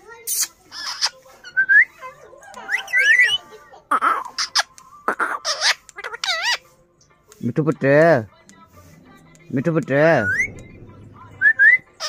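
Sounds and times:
parakeet calling: 0.3 - 1.7, 2.6 - 6.7, 9.9 - 12.0.

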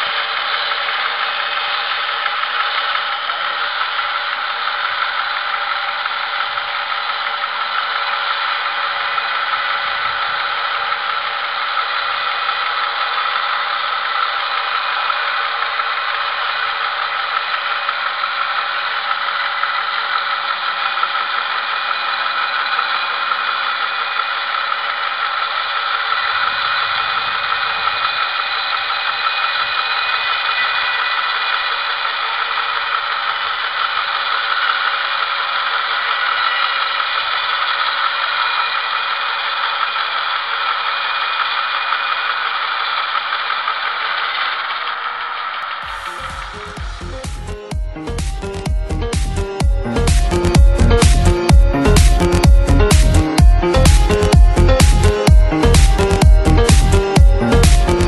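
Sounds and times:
bandsaw mill sawing log: 0.0 - 58.0.

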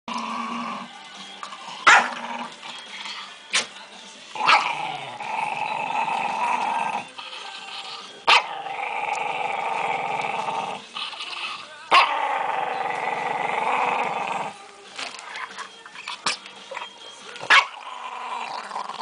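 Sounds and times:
dog barking: 1.9 - 2.1, 17.5 - 17.7
small dog growling: 4.4 - 14.6, 17.5 - 19.0.

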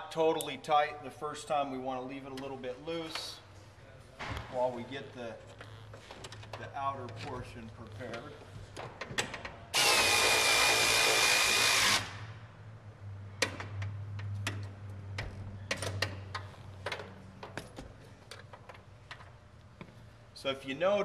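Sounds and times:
power drill whining: 9.8 - 12.2
metal clicks and knocks: 13.4 - 19.4.

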